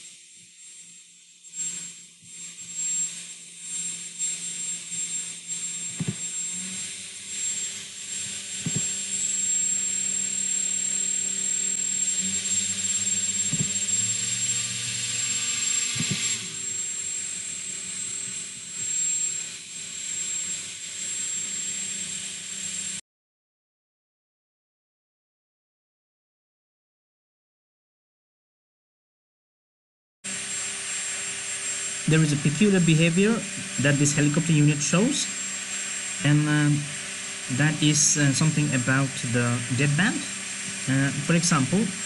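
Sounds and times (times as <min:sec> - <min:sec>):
motor tones gliding up and down: 0:00.0 - 0:23.0, 0:30.3 - 0:42.0
propellers whirring with high whine: 0:00.0 - 0:23.0, 0:30.3 - 0:42.0.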